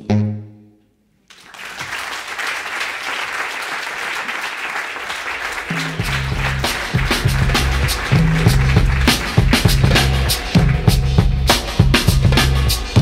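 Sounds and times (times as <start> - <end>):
audience applauding: 1.3 - 11.8
rhythmic bass line: 5.6 - 13.0.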